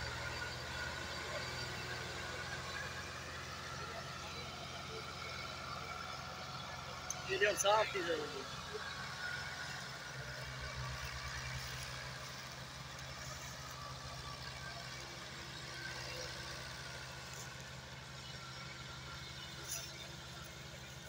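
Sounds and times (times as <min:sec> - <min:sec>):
tractor diesel engine running: 0:00.0 - 0:21.0.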